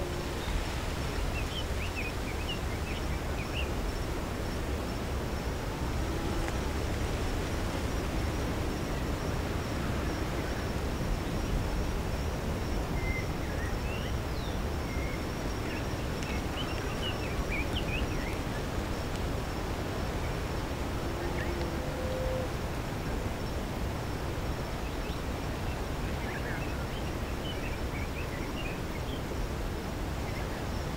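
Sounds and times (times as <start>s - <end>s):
faint high whine: 0.0s - 23.7s
wind rumbling: 0.0s - 26.2s.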